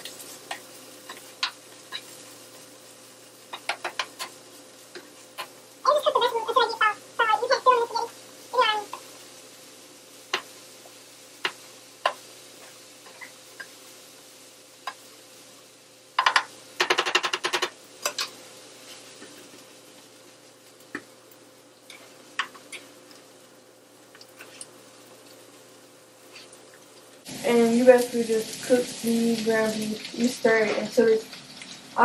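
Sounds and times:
utensils tapping against pans: 0.0 - 2.2, 3.5 - 5.6, 11.4 - 13.8, 16.2 - 18.4, 21.8 - 23.2
spatula stirring meat in skillet: 0.0 - 6.7, 8.9 - 23.4, 24.0 - 27.3.

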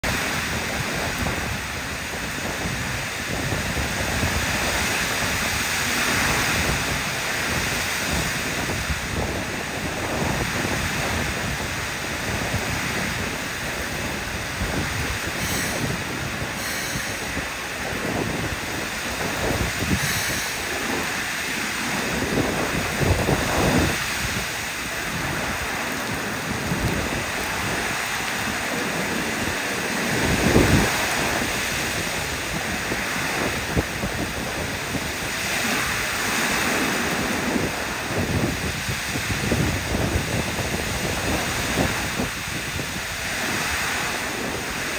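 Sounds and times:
heavy rain hissing: 0.0 - 44.9
electric train arriving and stopping: 15.3 - 22.0.

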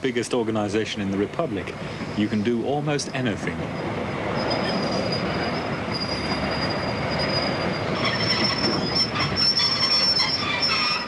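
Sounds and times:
rumble of rolling train: 0.0 - 11.0
train brakes squealing: 3.1 - 11.0.

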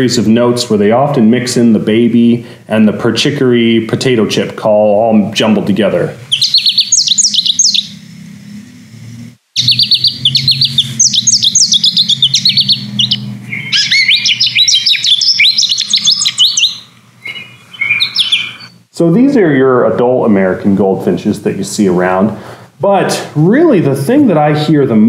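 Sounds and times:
goldfinch twittering song: 6.3 - 8.0, 9.6 - 18.8
nasal bird call: 6.3 - 8.2, 9.6 - 18.8.

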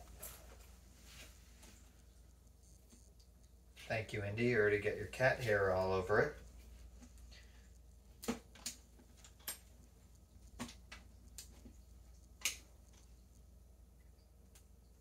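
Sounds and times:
plastic helmet clicks and rustles: 6.9 - 13.2.

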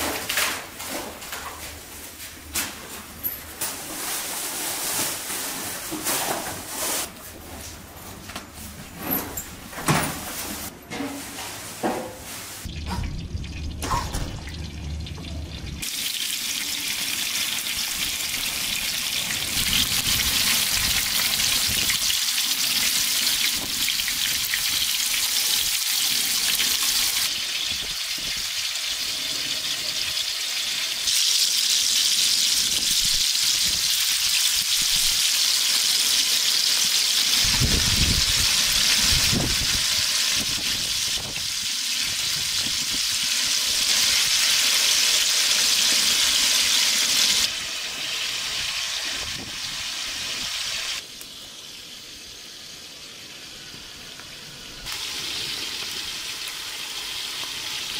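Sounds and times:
fish sizzling in hot oil: 15.7 - 57.9.

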